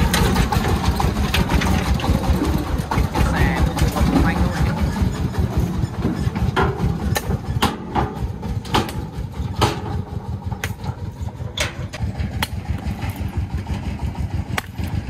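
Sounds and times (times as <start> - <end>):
diesel engine chugging: 0.0 - 15.0.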